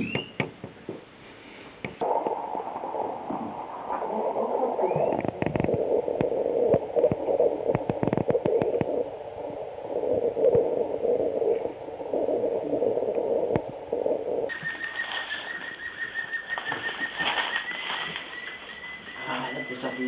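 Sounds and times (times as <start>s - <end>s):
paper crackling: 14.8s - 19.0s.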